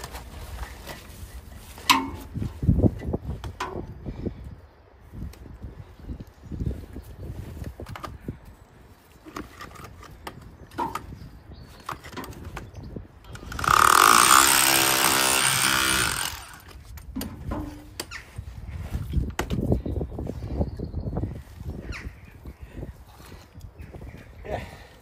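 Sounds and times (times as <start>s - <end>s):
core drill motor boring stone: 13.3s - 16.8s.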